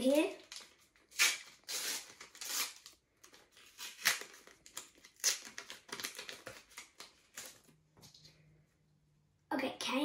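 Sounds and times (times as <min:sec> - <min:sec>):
card pack wrapper crinkling: 0:00.3 - 0:07.7.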